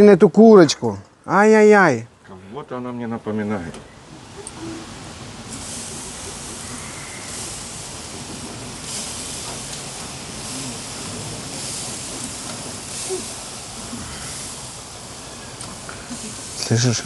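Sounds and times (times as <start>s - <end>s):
chicken sizzling on a grill: 4.1s - 17.0s.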